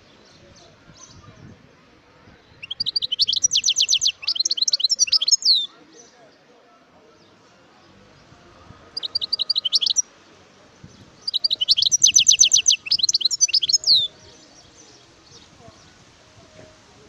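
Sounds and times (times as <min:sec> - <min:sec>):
goldfinch singing: 0:02.6 - 0:06.1, 0:08.2 - 0:10.1, 0:10.9 - 0:15.9.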